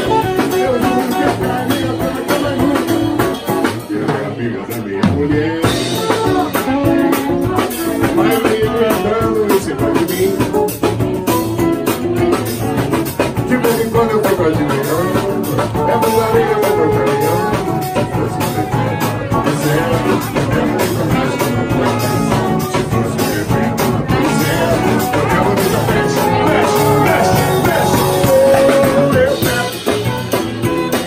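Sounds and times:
saxophone: 0:00.0 - 0:04.4, 0:05.3 - 0:31.0
drums: 0:00.0 - 0:31.0
live samba rock band: 0:00.0 - 0:31.0.

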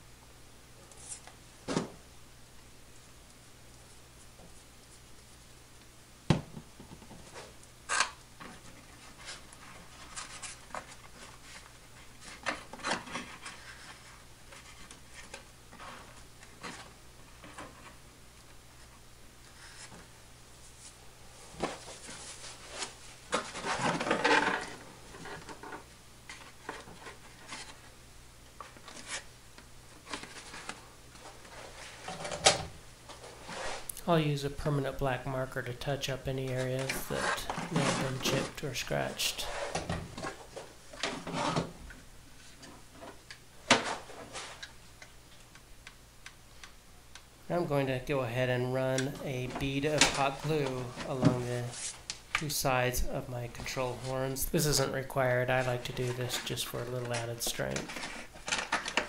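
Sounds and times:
rubbing and scraping on foam: 0:33.2 - 0:33.9, 0:50.2 - 0:52.0.

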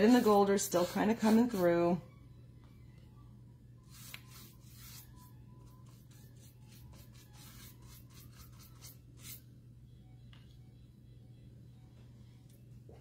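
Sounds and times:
brush scrubbing paint: 0:00.0 - 0:01.8, 0:03.9 - 0:09.4.

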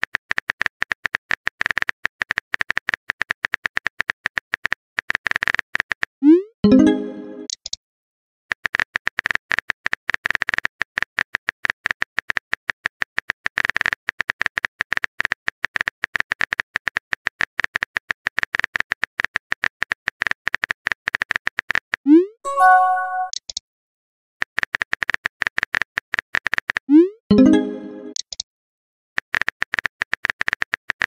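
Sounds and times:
brief chime: 0:22.5 - 0:23.4.

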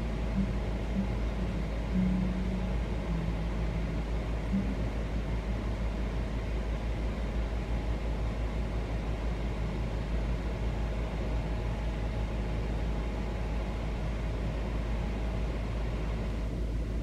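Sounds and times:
faint hum: 0:00.0 - 0:17.0.

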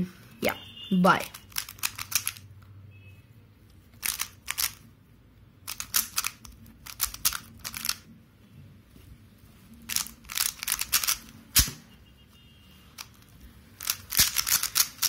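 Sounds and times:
puzzle cube clacking: 0:01.2 - 0:02.4, 0:03.9 - 0:04.9, 0:05.6 - 0:08.1, 0:09.9 - 0:11.8, 0:13.0 - 0:15.0.

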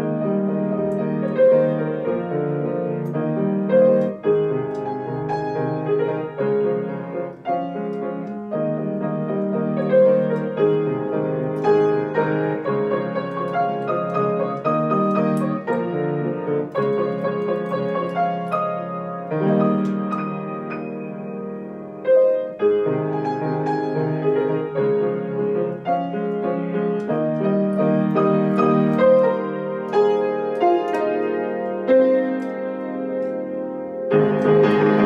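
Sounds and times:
gentle grand piano piece: 0:00.0 - 0:35.0.

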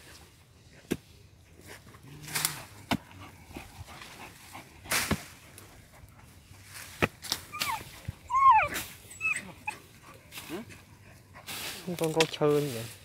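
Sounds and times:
dogs digging in loose soil: 0:00.0 - 0:13.0
dog whining high-pitched: 0:07.5 - 0:09.8.

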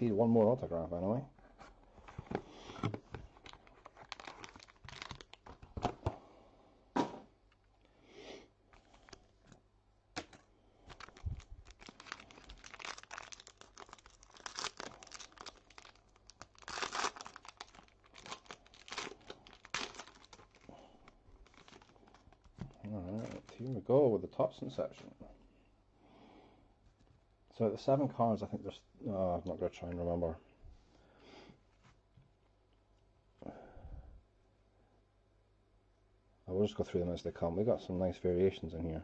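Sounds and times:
plastic wrapping tearing and crinkling: 0:03.3 - 0:05.8, 0:10.2 - 0:23.8.

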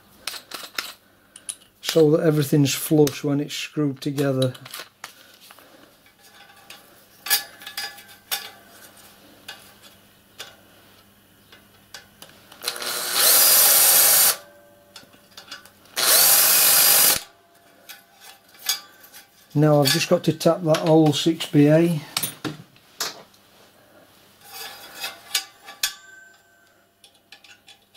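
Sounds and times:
cordless drill running: 0:12.6 - 0:14.4, 0:16.0 - 0:17.3.

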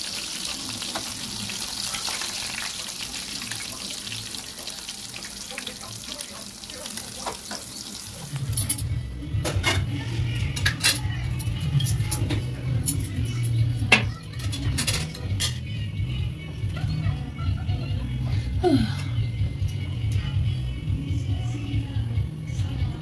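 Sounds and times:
chicken sizzling in oil: 0:00.0 - 0:08.6.

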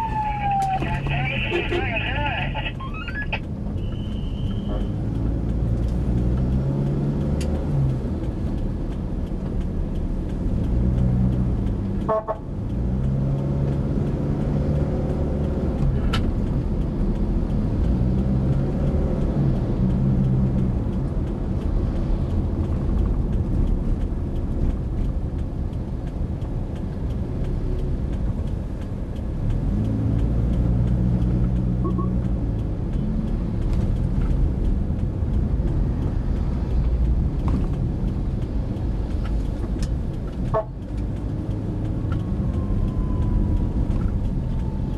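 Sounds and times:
car engine: 0:00.0 - 0:44.9
road noise: 0:00.0 - 0:44.9
car horn toots: 0:00.9 - 0:02.1, 0:12.0 - 0:12.4, 0:40.5 - 0:40.8.

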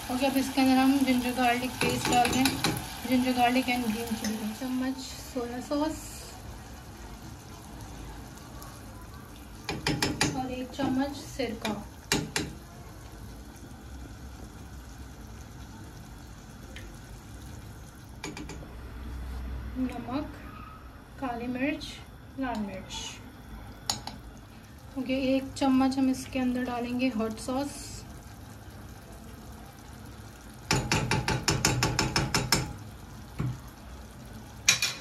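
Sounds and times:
water boiling with bubbling hiss: 0:00.0 - 0:35.0
metal spoon clattering in a pan: 0:01.7 - 0:02.9, 0:34.7 - 0:35.0.

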